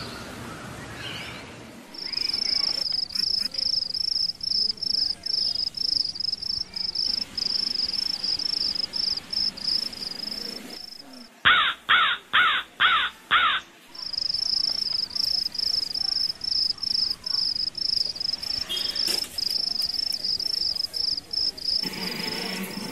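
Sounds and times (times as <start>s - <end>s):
insect pulsing trill: 2.0s - 11.0s
crow cawing: 11.4s - 13.6s.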